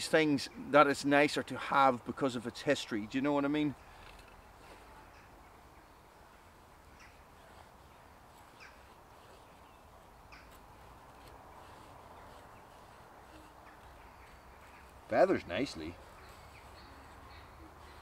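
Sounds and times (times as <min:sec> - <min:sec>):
knife scraping a wooden stick: 0:07.1 - 0:18.0.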